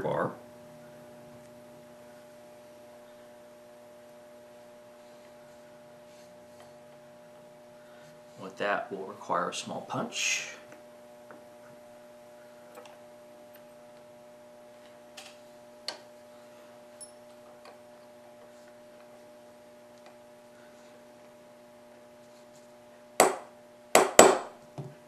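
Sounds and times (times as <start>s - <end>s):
sharp knocks: 23.2s - 24.9s.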